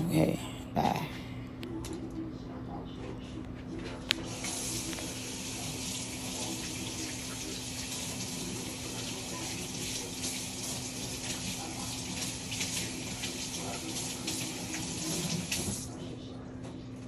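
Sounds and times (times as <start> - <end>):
tap water splashing into sink: 4.2 - 15.9.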